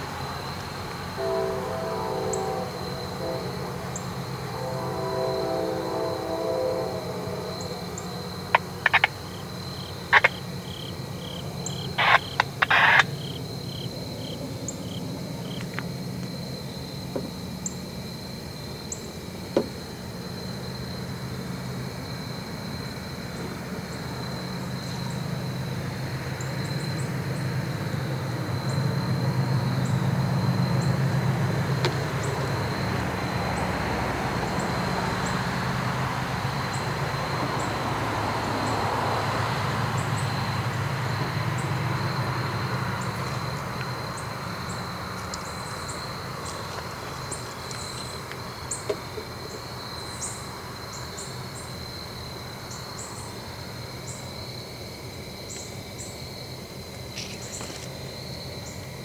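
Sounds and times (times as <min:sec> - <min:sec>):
train cars rolling: 0:00.0 - 0:18.1, 0:19.2 - 0:49.7
diesel locomotive engine: 0:00.0 - 0:59.0
insect buzz: 0:00.0 - 0:59.0
birds chirping: 0:07.6 - 0:13.8.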